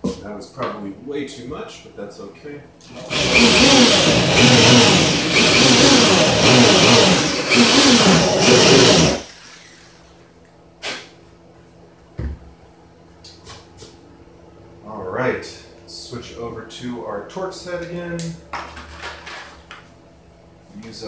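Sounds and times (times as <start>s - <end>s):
electric drill into wood: 2.8s - 10.0s.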